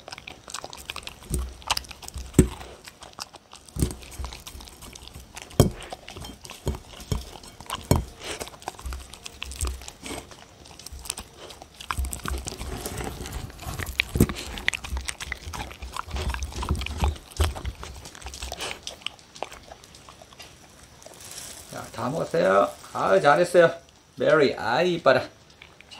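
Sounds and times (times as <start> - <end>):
teeth clicking against plate: 0.0 - 20.5
dog chewing and licking: 0.0 - 21.3, 25.4 - 25.9.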